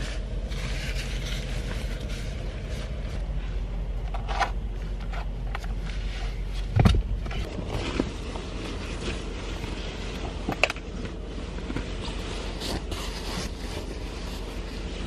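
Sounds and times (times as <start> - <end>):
steady low rumble: 0.0 - 15.0
sleeping bag rustling: 7.4 - 15.0.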